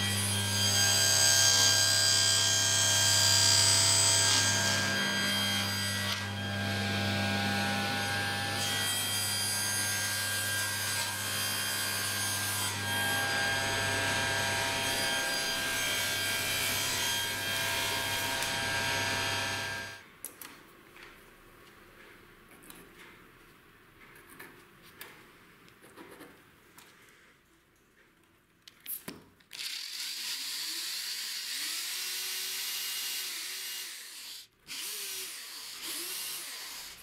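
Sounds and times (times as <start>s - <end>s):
table saw cutting plywood: 0.0s - 20.0s.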